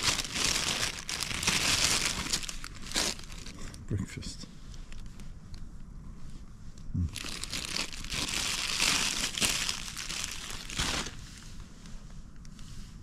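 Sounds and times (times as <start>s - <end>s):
food wrapper crinkling: 0.0s - 3.8s, 7.1s - 11.2s.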